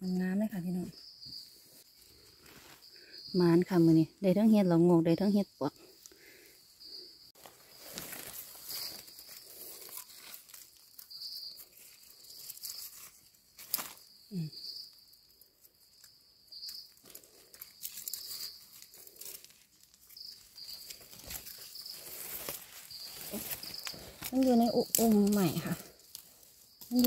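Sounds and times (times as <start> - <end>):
leaves rustling: 1.4 - 3.9, 5.8 - 27.0
high insect drone: 5.7 - 27.0
knife scraping soil: 7.7 - 14.0.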